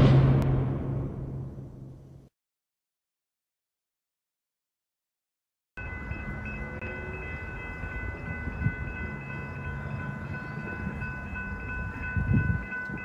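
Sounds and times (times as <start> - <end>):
crossing warning bell ringing: 5.8 - 13.0
train rumble: 5.8 - 13.0
wind buffeting microphone: 7.0 - 13.0.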